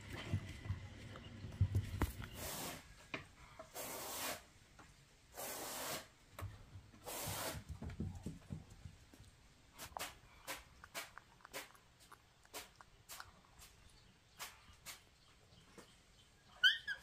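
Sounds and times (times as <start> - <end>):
rasping rubbing noises: 9.7 - 15.2.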